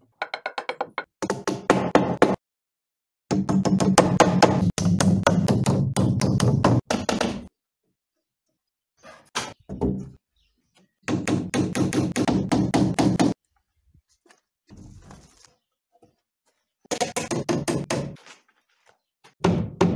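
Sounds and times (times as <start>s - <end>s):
hammer striking wooden boards: 3.3s - 7.5s, 11.1s - 13.4s, 19.4s - 19.9s.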